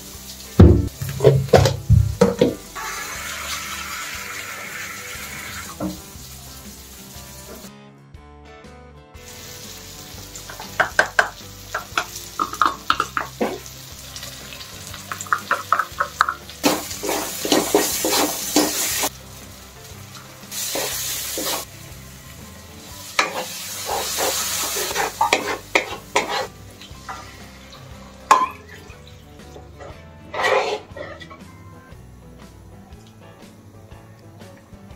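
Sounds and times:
spices sizzling in a pan: 0:00.0 - 0:07.7, 0:09.2 - 0:34.9
wooden spatula scraping a pan: 0:16.6 - 0:19.1, 0:23.2 - 0:27.3, 0:29.8 - 0:31.4.

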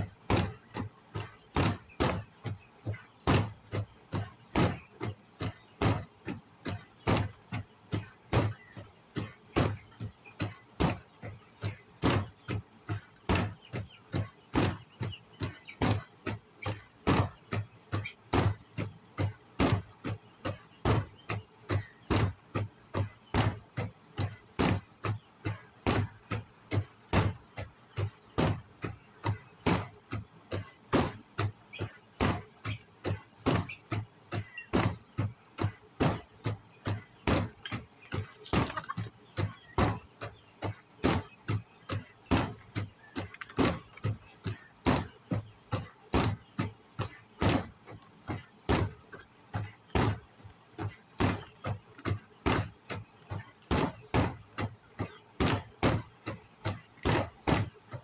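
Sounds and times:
gloved punches on punching bag: 0:00.3 - 0:04.8, 0:15.4 - 0:18.6, 0:19.2 - 0:27.4, 0:30.6 - 0:38.8, 0:44.8 - 0:46.7, 0:47.4 - 0:49.0, 0:49.6 - 0:50.2, 0:52.1 - 0:52.8, 0:55.4 - 0:56.1, 0:57.0 - 0:57.7.

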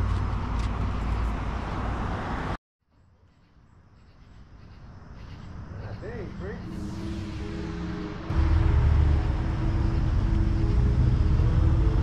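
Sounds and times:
quiet outdoor background: 0:00.0 - 0:12.0
vehicles idling: 0:06.0 - 0:12.0.

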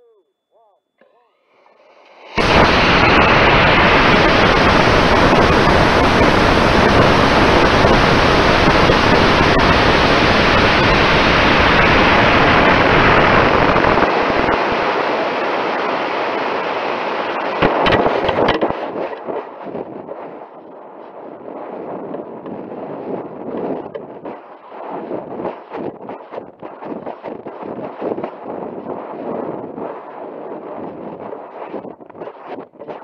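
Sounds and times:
rocket motor roaring: 0:01.7 - 0:19.9
wind rushing over rocket: 0:02.2 - 0:33.0.

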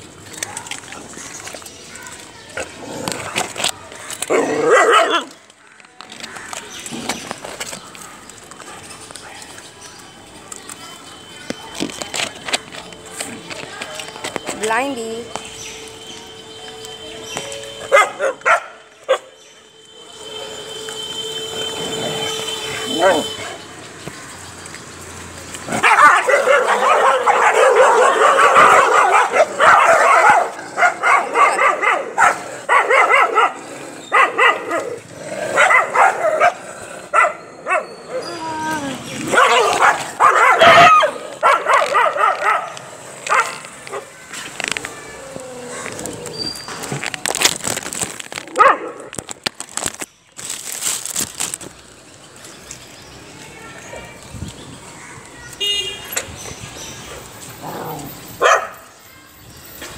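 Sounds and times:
dogs barking and yipping: 0:04.0 - 0:05.5, 0:15.2 - 0:19.5, 0:20.1 - 0:23.8, 0:25.5 - 0:44.4, 0:47.6 - 0:49.3, 0:57.0 - 0:59.0
dog yelping: 0:17.9 - 0:19.3, 0:22.9 - 0:23.5, 0:25.8 - 0:35.0, 0:35.6 - 0:44.1, 0:58.4 - 0:58.8
dog whining: 0:37.2 - 0:41.2
plastic bag crinkling: 0:43.3 - 0:52.9.

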